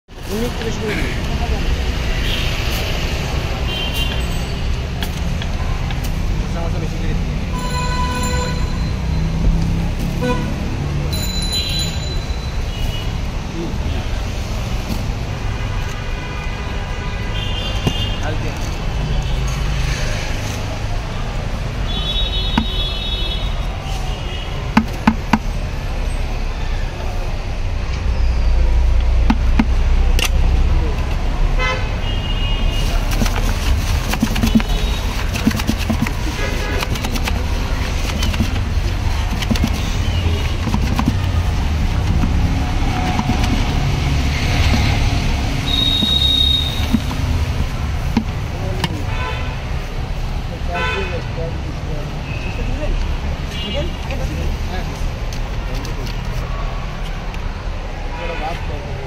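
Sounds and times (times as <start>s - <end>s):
low street traffic rumble: 0.1s - 59.0s
metal spoon knocking plastic tub: 22.5s - 22.8s, 24.7s - 25.5s, 29.3s - 29.8s, 33.1s - 49.0s.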